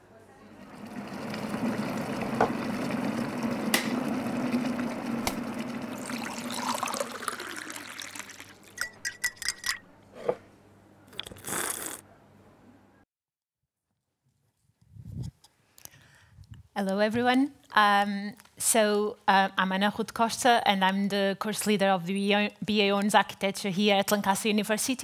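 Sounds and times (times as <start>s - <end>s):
rush like pouring liquid: 0.6s - 8.8s.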